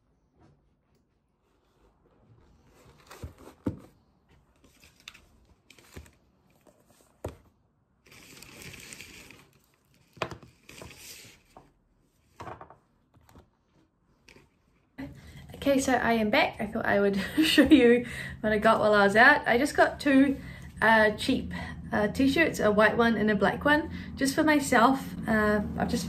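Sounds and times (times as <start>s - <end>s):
paper and packaging rustling: 1.4s - 11.7s.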